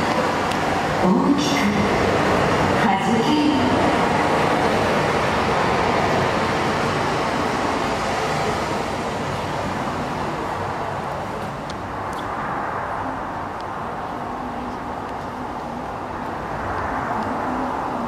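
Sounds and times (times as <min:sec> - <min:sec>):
ocean surf rushing: 0:00.0 - 0:13.4.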